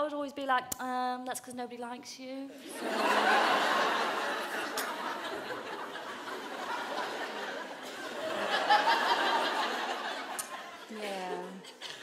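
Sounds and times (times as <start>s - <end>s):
audience laughing: 2.6s - 12.0s.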